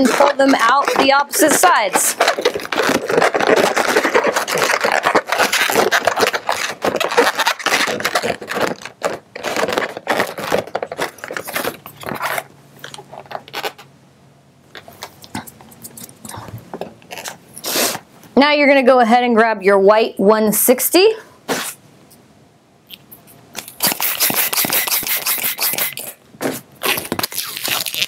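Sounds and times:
balloons rubbing and scraping: 0.0 - 13.9, 21.5 - 21.8, 23.6 - 28.0.

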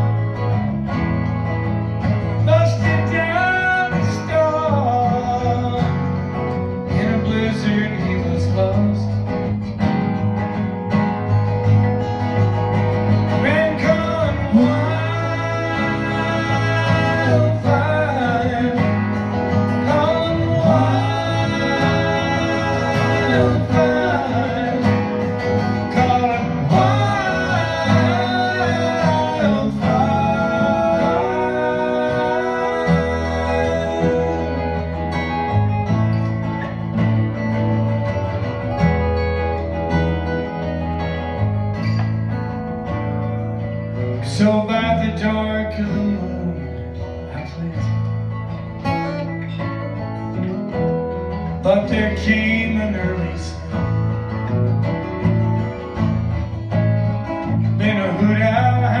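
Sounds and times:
bass guitar: 0.0 - 59.0
strummed acoustic guitars: 0.0 - 59.0
wordless singing: 13.4 - 35.1.

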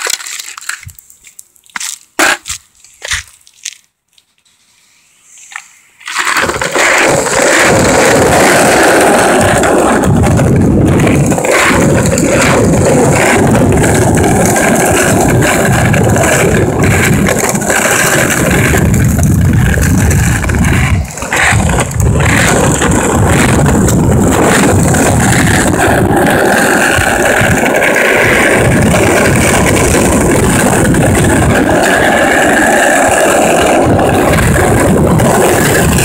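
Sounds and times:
wheels rolling on concrete: 0.0 - 36.0.

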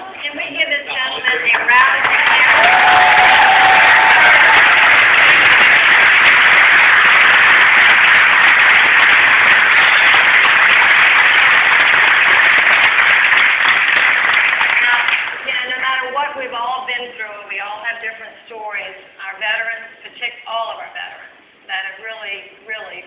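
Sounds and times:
large audience applauding: 1.5 - 15.5.

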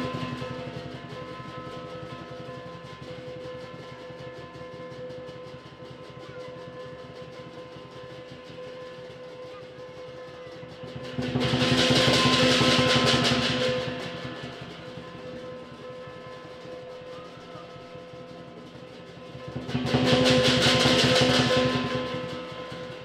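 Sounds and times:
fast drumming: 0.0 - 2.5, 10.6 - 23.0
cymbals crashing: 10.9 - 23.0.

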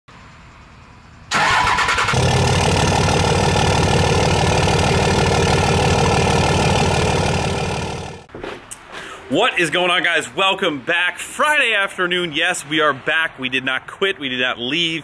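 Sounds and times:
diesel engine starting and idling: 1.2 - 8.3.

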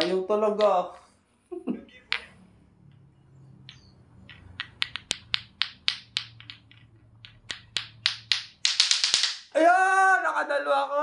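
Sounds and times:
plastic clacker balls knocking: 0.0 - 0.7, 2.1 - 9.5.

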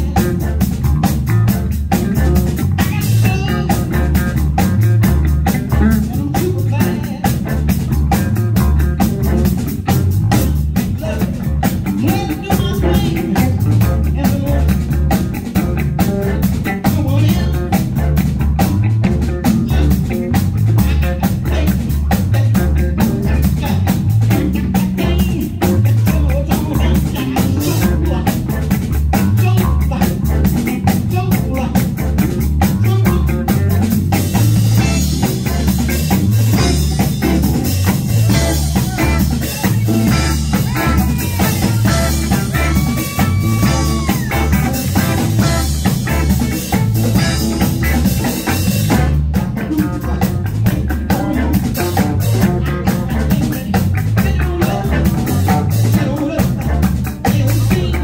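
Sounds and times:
live band playing upbeat groove: 0.0 - 58.0.

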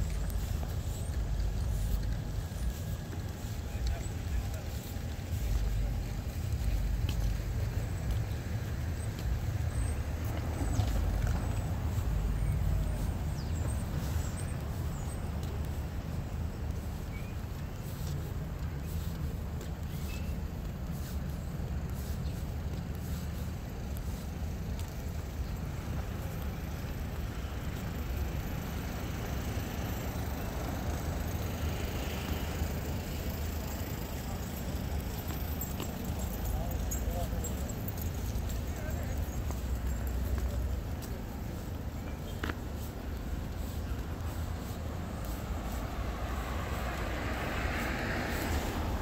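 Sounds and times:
traffic rumble: 0.0 - 49.0
faint bird chirps: 19.8 - 20.4.

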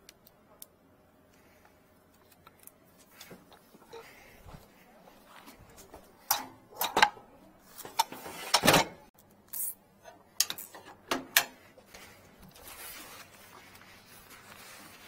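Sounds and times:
short rustle: 11.6 - 15.0.

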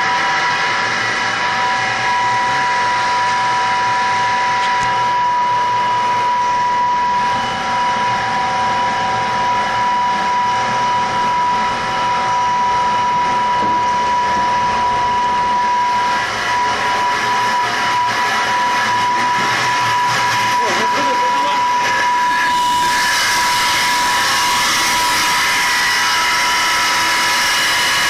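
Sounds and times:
pump machine with high whine: 0.0 - 28.0.

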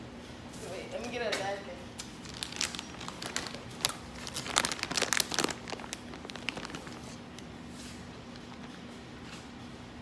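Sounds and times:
bag crinkling and rustling: 2.2 - 7.5.

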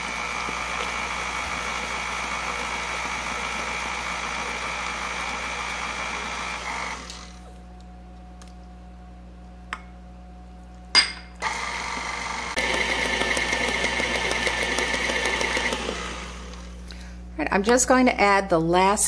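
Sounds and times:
stand mixer whirring: 0.0 - 7.4, 11.4 - 16.7.

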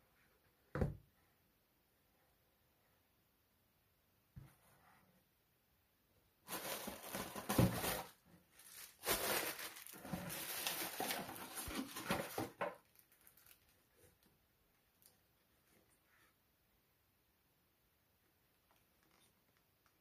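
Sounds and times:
plastic packing material crinkling: 6.4 - 14.2.

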